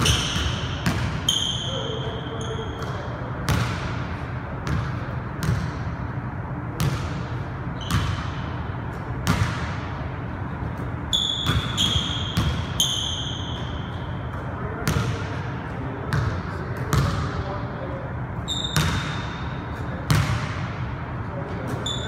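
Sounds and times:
sneakers squeaking on hardwood: 7.8s - 8.4s, 11.0s - 15.1s, 18.4s - 19.4s, 21.7s - 22.0s
basketball bouncing on hardwood floor: 9.2s - 9.8s, 11.4s - 12.7s, 16.9s - 17.2s, 18.7s - 19.2s, 20.1s - 20.6s.

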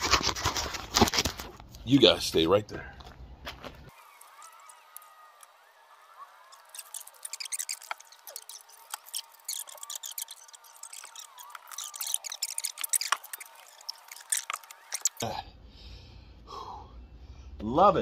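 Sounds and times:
footsteps on brick rubble: 0.2s - 3.9s.

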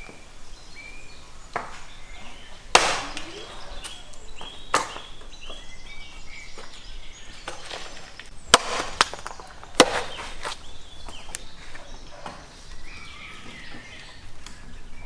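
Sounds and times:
birds chirping: 0.0s - 15.0s
axe chopping on wooden block: 2.7s - 3.2s, 8.5s - 10.2s.

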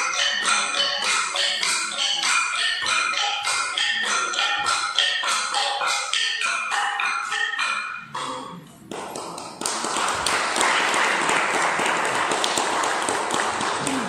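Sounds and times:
rhythmic percussion music: 0.0s - 14.0s
audience clapping: 8.9s - 14.0s.

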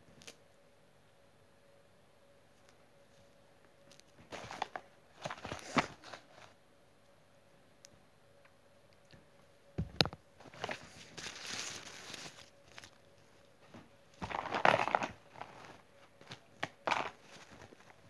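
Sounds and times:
fabric rustling and crinkling: 3.9s - 6.6s, 10.4s - 18.0s.

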